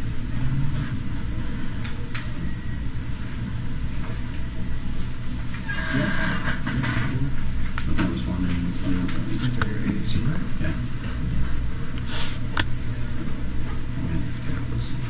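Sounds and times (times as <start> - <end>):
low room rumble: 0.0 - 15.0.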